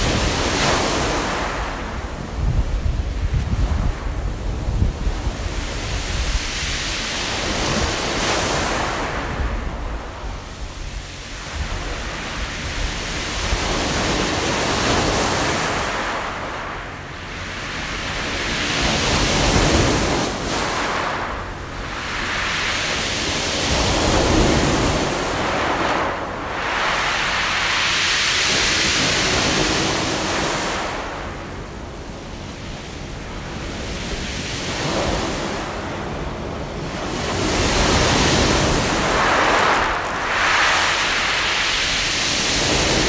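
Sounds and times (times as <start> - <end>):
waves breaking on pebbles: 36.9 - 43.0
low rumble: 38.4 - 42.0
pebbles rattling: 39.3 - 40.3.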